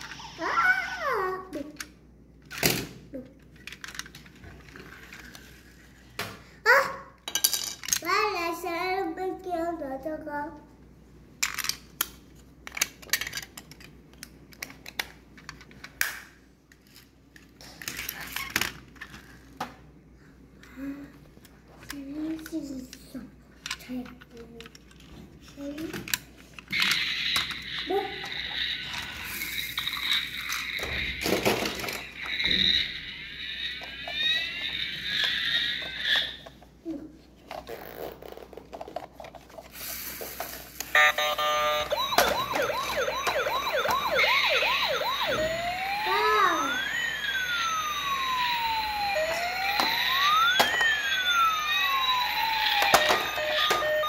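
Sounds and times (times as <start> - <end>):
plastic toy parts clicking: 1.6 - 5.4, 11.4 - 19.2, 23.6 - 27.6
pitched melody-like tones: 41.0 - 54.0.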